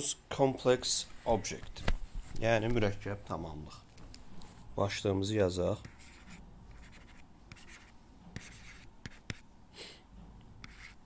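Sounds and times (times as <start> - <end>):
stylus scratching on writing surface: 5.8 - 9.5, 10.6 - 11.0.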